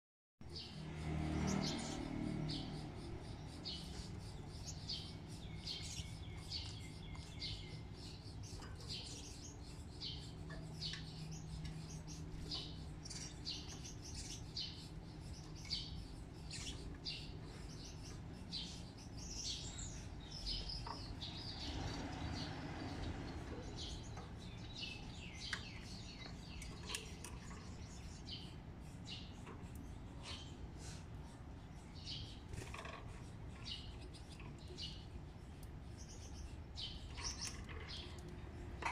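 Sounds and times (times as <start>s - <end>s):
small birds chirping: 0.4s - 38.9s.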